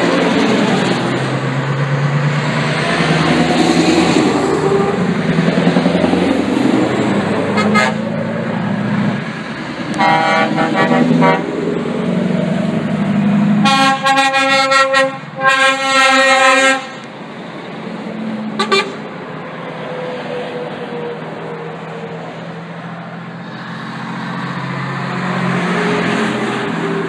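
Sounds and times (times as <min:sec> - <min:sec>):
truck engines droning: 0:00.0 - 0:27.0
truck horns: 0:02.5 - 0:06.3, 0:07.0 - 0:17.1, 0:18.4 - 0:19.2.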